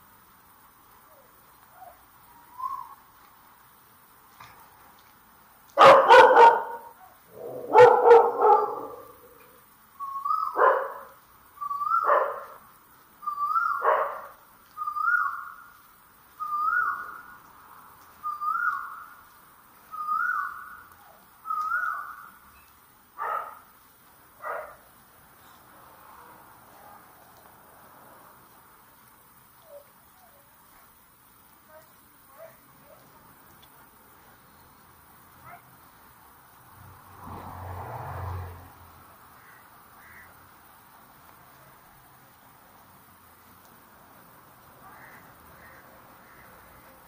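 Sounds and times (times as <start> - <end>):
dog barking: 5.8 - 9.2, 10.6 - 11.2, 12.0 - 12.6, 13.8 - 14.4, 23.2 - 23.6, 24.4 - 24.8, 31.7 - 33.1, 35.4 - 35.7.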